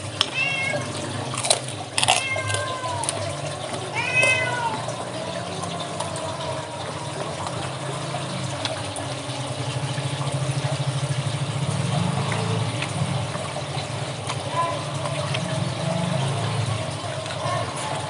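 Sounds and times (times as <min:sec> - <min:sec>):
cat meowing: 0:00.3 - 0:01.2, 0:02.0 - 0:05.0.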